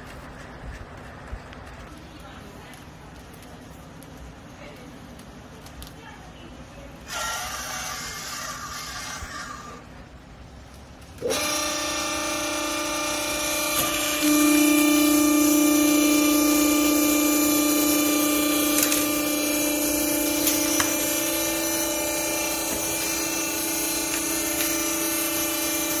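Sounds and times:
electric motor and hydraulic pump whine: 6.9s - 26.0s.

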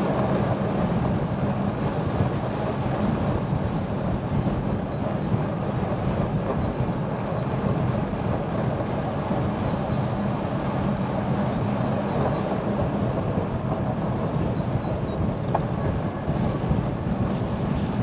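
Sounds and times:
bicycle tyres rolling on road: 0.0s - 15.9s
wind buffeting microphone: 0.0s - 18.0s.

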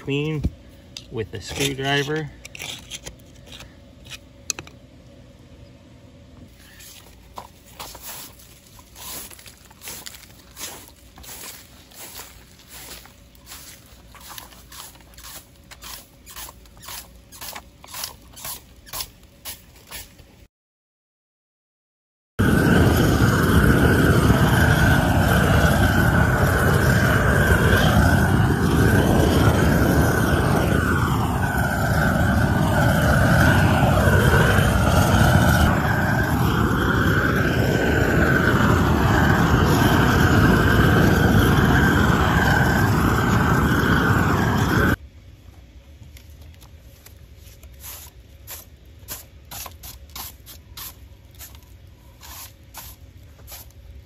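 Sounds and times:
broom sweeping bricks: 6.5s - 20.4s, 46.8s - 54.0s
gas torch flame rushing: 7.8s - 20.2s, 22.4s - 45.0s.

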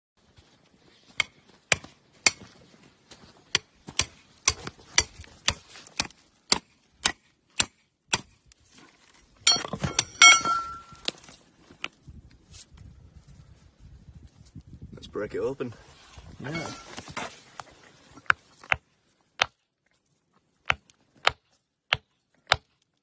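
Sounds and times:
hammer striking rock: 1.2s - 2.5s, 3.5s - 8.4s, 9.5s - 10.9s, 19.4s - 19.6s, 20.6s - 22.7s
bright ringing clink: 9.5s - 11.0s.

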